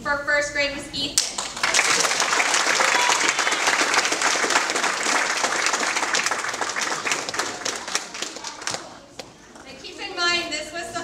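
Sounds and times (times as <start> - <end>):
audience applauding: 1.2 - 9.7.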